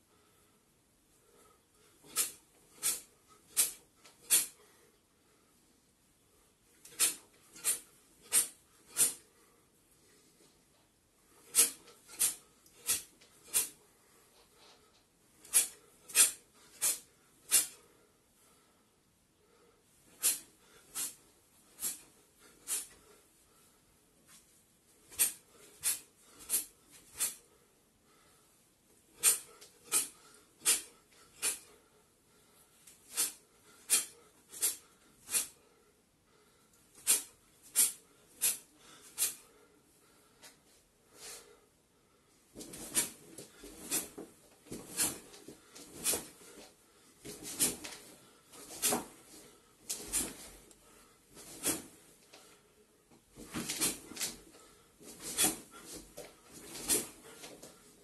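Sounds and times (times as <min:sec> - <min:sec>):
sharp forceful exhalations: 0:02.0 - 0:04.6, 0:06.9 - 0:09.3, 0:11.4 - 0:13.8, 0:20.2 - 0:21.2, 0:21.8 - 0:23.2, 0:25.1 - 0:27.5, 0:29.2 - 0:31.8, 0:33.1 - 0:35.7, 0:37.0 - 0:39.6.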